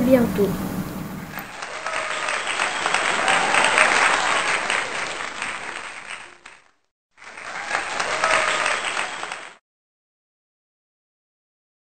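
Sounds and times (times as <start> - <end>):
hands clapping: 1.3 - 9.6.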